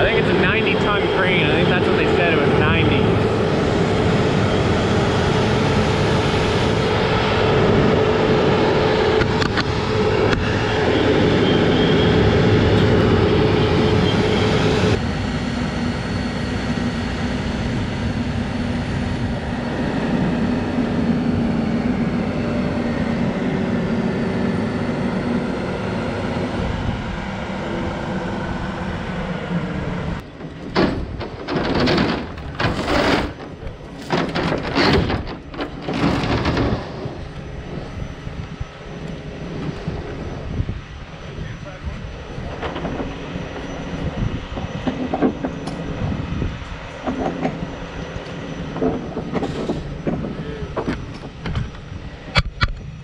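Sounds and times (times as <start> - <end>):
large engine droning: 0.0 - 53.0
loud rough noise bursts: 30.5 - 38.0.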